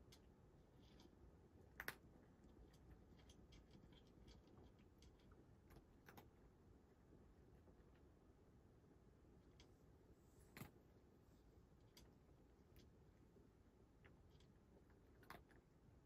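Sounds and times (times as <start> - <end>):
cat crunching dry kibble: 14.3 - 15.6.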